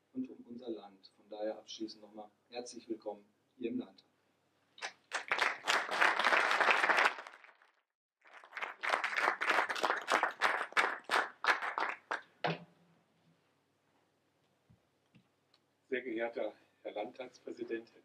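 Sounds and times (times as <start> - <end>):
audience applauding: 4.8 - 12.3.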